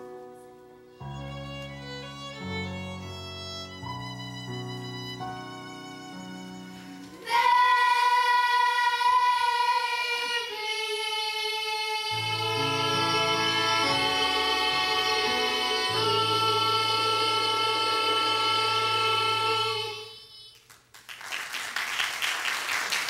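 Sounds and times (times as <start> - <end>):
held instrumental chords: 12.1 - 20.3.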